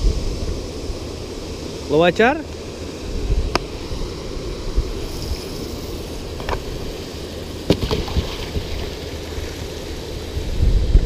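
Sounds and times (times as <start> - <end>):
wind and water rumble on microphone: 3.0 - 11.0.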